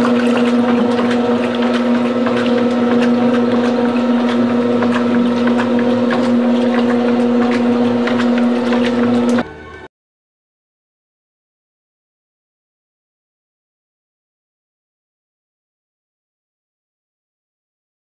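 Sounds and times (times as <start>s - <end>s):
small clicks and splashes: 0.0s - 9.4s
water sloshing: 0.0s - 9.5s
washing machine motor hum: 0.0s - 9.9s.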